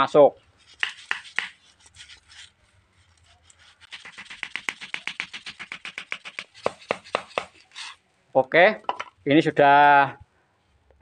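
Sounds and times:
wooden peg being knocked: 8.8 - 9.2.

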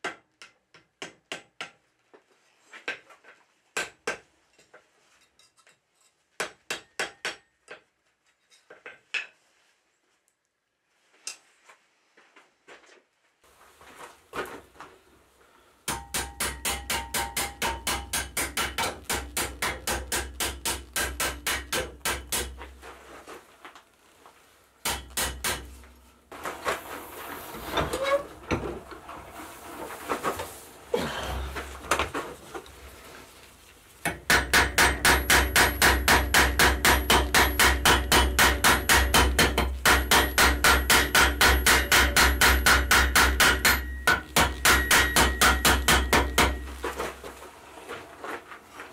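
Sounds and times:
hammer striking steel on anvil: 6.4 - 7.8, 15.9 - 22.6, 24.8 - 26.0, 34.0 - 46.8.

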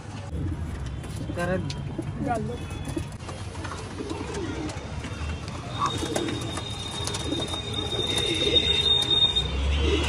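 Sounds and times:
pigeons cooing: 3.8 - 4.8, 5.7 - 9.0.

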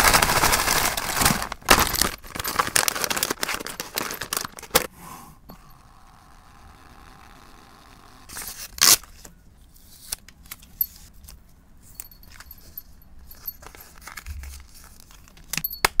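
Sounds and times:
paper receipt tearing: 0.0 - 4.9, 7.2 - 9.2
paper rustling: 0.0 - 4.9, 13.4 - 15.6.

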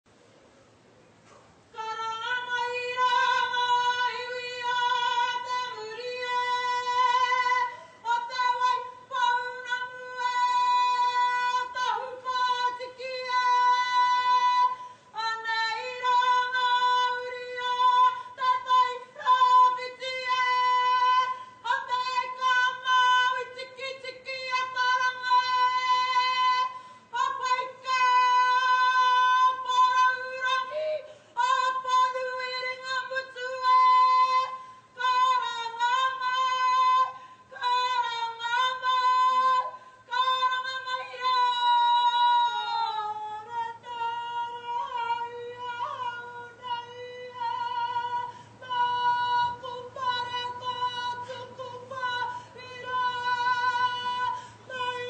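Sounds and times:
woman singing long held notes: 1.7 - 55.0.

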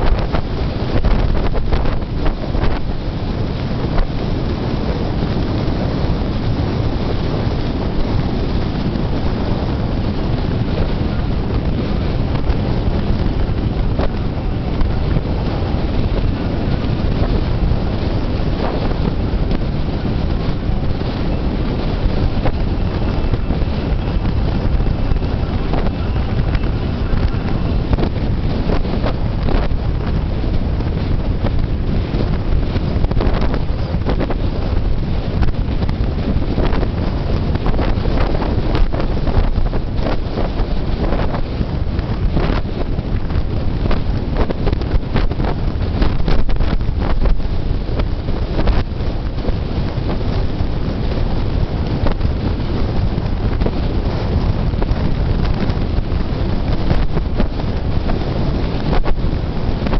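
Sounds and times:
road and tyre noise: 0.0 - 59.9
wind buffeting microphone: 0.0 - 59.9.

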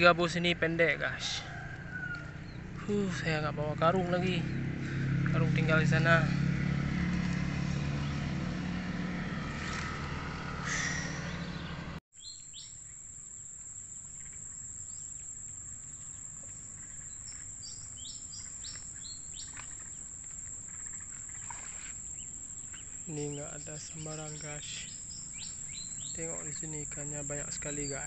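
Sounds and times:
short bird chirps: 10.6 - 12.8.

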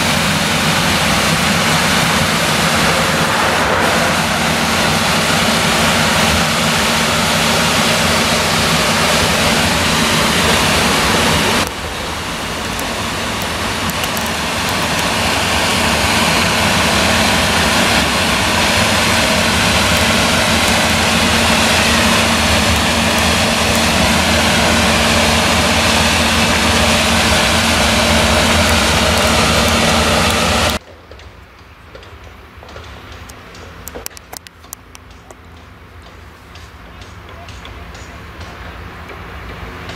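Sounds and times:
tractor engine driving: 0.0 - 30.8
combine harvester engine drone: 0.0 - 39.9.

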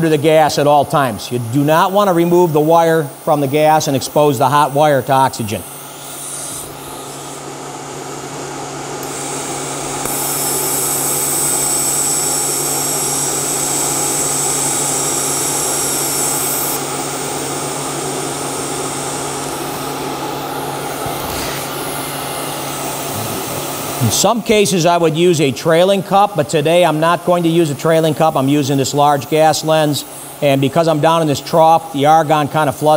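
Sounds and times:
gas post-flow hiss: 0.0 - 7.5, 14.6 - 32.9
welding arc hiss: 0.0 - 32.9.

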